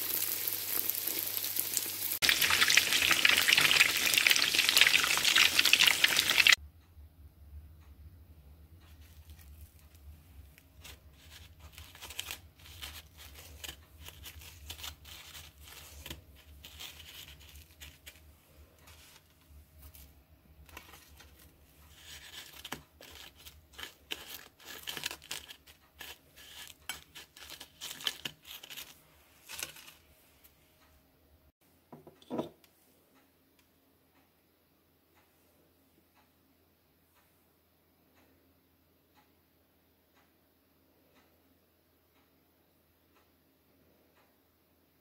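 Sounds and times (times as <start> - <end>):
bread scraping in sugar: 10.8 - 20.1, 20.7 - 30.0.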